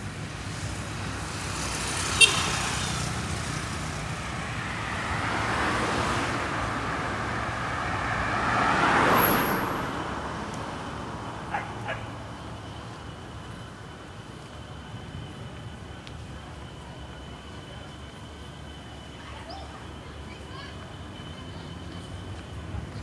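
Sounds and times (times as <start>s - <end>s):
street traffic: 0.0s - 23.0s
vehicle passing by: 1.1s - 12.2s.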